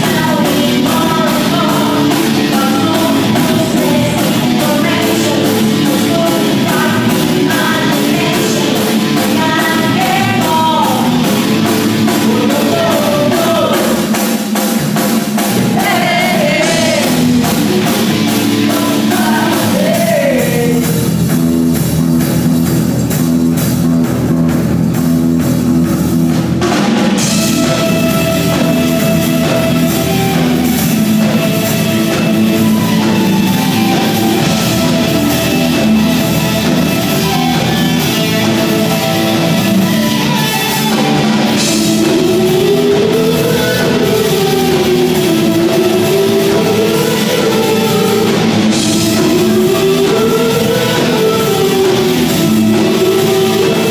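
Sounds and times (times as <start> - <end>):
woman singing: 0.0 - 14.1, 15.6 - 17.5, 18.2 - 21.0, 41.5 - 53.9
live rock band playing: 0.0 - 53.9.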